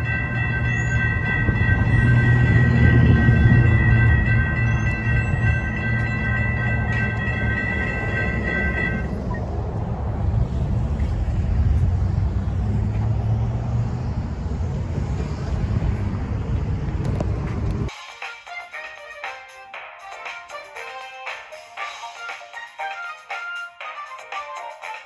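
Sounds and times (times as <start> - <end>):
train horn chord: 0.0 - 9.2
train running rumble: 0.0 - 17.9.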